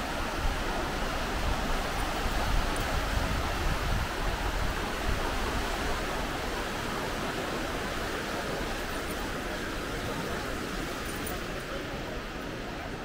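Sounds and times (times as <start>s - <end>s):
fast-flowing water rushing: 0.0s - 13.0s.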